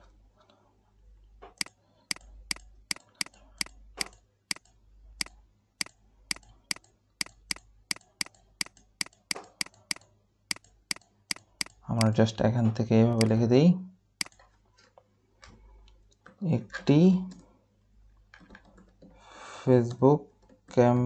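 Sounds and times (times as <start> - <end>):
computer mouse clicking: 1.5 - 12.2, 13.2 - 13.4, 14.2 - 14.5, 18.4 - 19.1.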